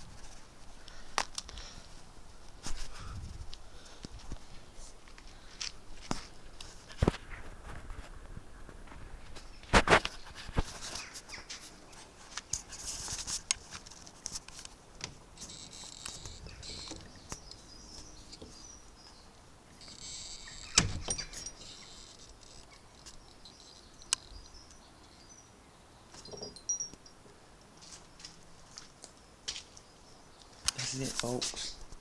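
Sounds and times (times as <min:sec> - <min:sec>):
lock and keys rattling: 0:20.0 - 0:24.1.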